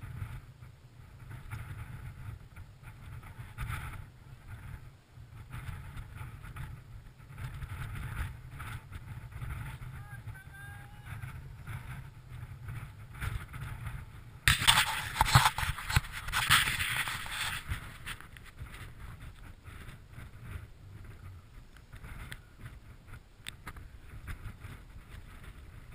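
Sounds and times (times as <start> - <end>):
wind noise on microphone: 0.0 - 25.9
hand rubbing and knocking camera: 11.2 - 25.8.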